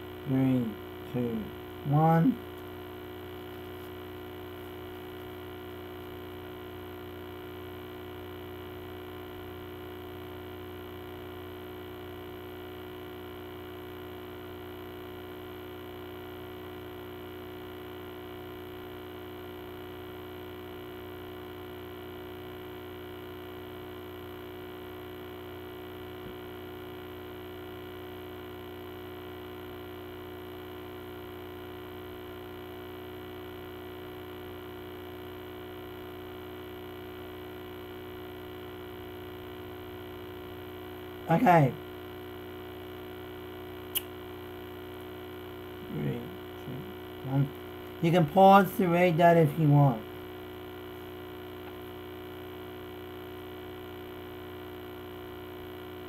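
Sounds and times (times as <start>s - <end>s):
electrical mains hum: 0.0s - 56.0s
faint click: 43.9s - 44.1s.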